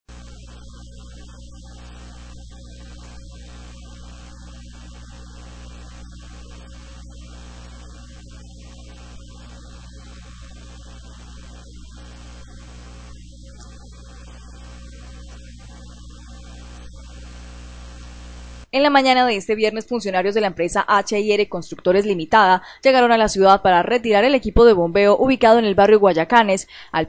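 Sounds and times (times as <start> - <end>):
high-pitched whine: 0.1 - 18.7
static hiss: 0.1 - 18.9
electrical mains hum: 0.1 - 27.0.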